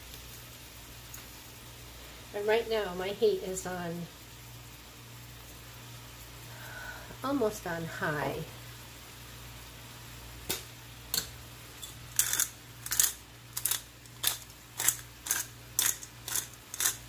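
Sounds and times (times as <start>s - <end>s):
spice grinder ratcheting: 12.1s - 17.0s.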